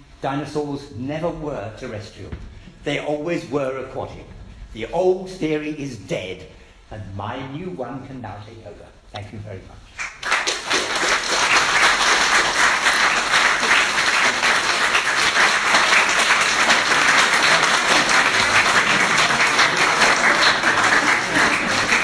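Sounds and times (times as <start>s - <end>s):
audience applause: 10.0s - 22.0s.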